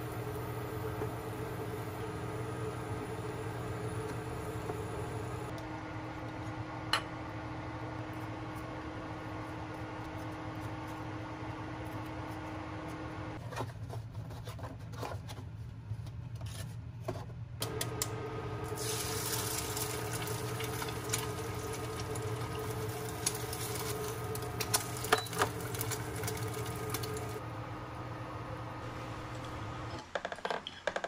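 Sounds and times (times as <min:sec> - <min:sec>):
small machine humming: 0:00.0 - 0:13.4, 0:17.6 - 0:30.1
liquid pouring hiss: 0:18.7 - 0:27.4.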